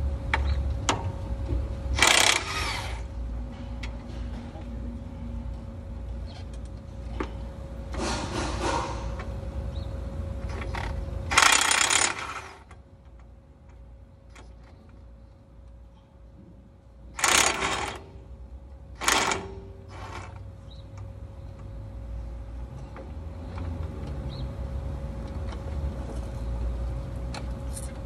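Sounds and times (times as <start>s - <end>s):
metal parts clanking and scraping: 8.0s - 9.3s, 10.5s - 12.8s, 17.2s - 18.1s, 19.0s - 20.4s.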